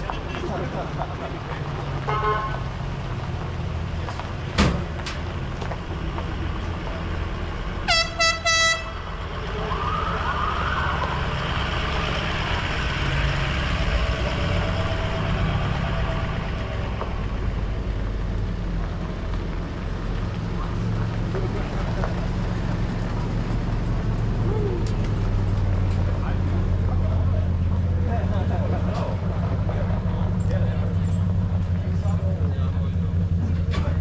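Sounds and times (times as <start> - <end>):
vehicle engines and tyres on gravel: 0.0 - 34.0
air horn blasts: 2.1 - 2.6, 7.9 - 9.0
siren wail: 9.4 - 12.4.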